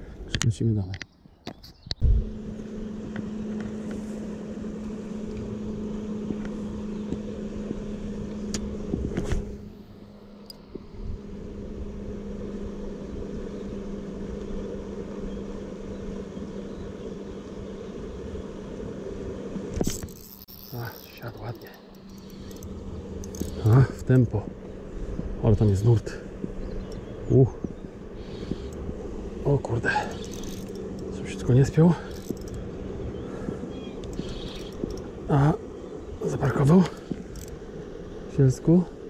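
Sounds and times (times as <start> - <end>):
steady motor hum: 1.4 - 39.0
low rumble: 1.9 - 19.7.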